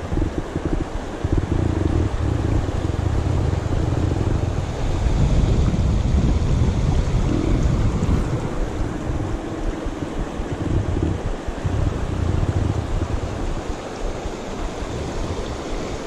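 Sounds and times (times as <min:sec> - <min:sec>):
river rushing over stones: 0:00.0 - 0:16.0
wind buffeting microphone: 0:00.0 - 0:16.0.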